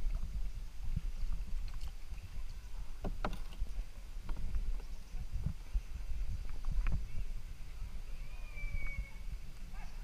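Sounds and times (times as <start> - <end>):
paddle splashing in water: 1.4 - 4.9.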